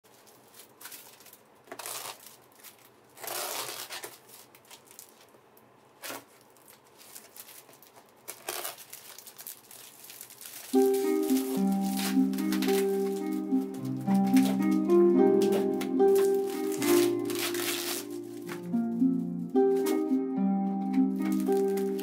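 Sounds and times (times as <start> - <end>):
plastic crinkling and tearing: 0.1 - 20.1, 21.1 - 22.0
blade slicing packing tape: 0.8 - 5.0, 8.3 - 9.6, 10.2 - 18.6.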